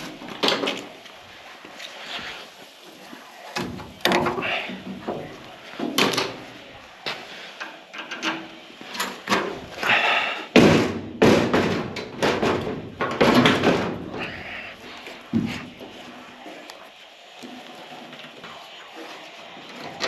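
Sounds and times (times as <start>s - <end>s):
knocks and clatter on metal panels: 0.0s - 1.0s, 3.6s - 6.4s, 7.1s - 9.7s, 10.5s - 14.3s.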